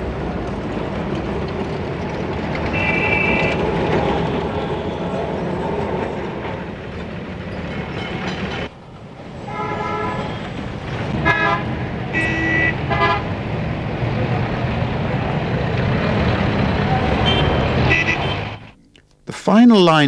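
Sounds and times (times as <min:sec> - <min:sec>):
street traffic rumble: 0:00.0 - 0:19.4
tram running: 0:00.0 - 0:19.9
vehicle horn toots: 0:02.7 - 0:03.7, 0:09.5 - 0:10.4, 0:11.2 - 0:13.3, 0:17.2 - 0:18.7.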